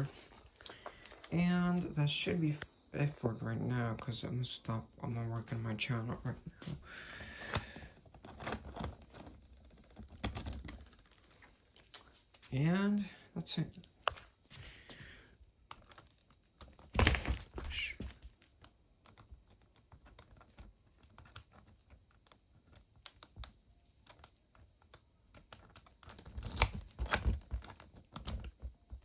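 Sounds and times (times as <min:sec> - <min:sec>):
metal lock clicks and rattles: 0:08.2 - 0:11.2, 0:24.9 - 0:28.6
lock clatter: 0:25.3 - 0:28.7.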